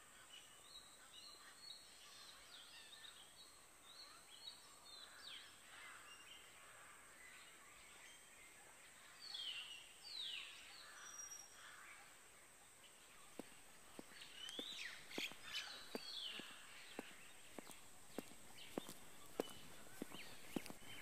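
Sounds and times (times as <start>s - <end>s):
birds chirping: 0.1s - 21.0s
footsteps on ground: 13.2s - 21.0s.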